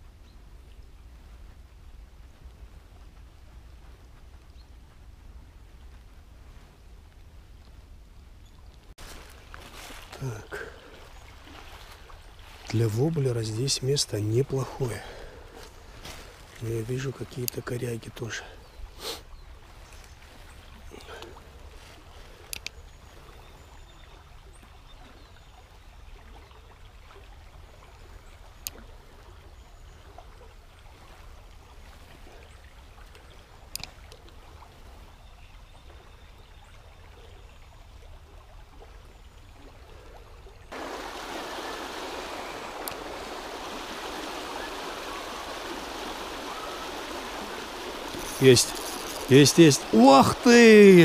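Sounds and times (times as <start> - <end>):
river rushing: 40.7 - 51.0.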